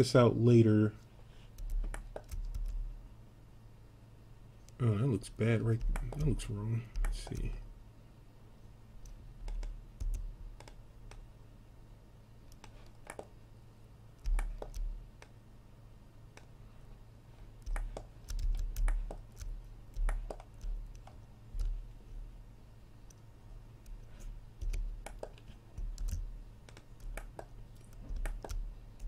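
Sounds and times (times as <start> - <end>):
low steady hum: 0.0 - 29.0
mouse and keyboard clicks: 1.6 - 2.8, 5.8 - 7.6, 9.0 - 11.2, 12.5 - 13.3, 14.2 - 15.4, 17.6 - 21.8, 23.8 - 29.0.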